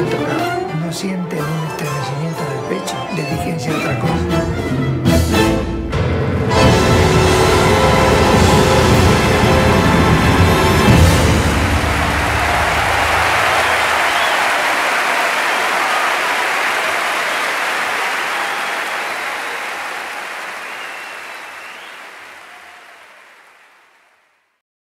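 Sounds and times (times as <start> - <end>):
audience applauding: 6.6 - 24.5.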